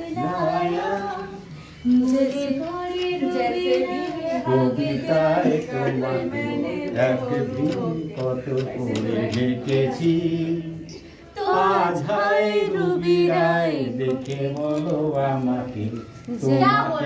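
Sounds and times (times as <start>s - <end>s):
people singing unaccompanied: 0.0s - 17.0s.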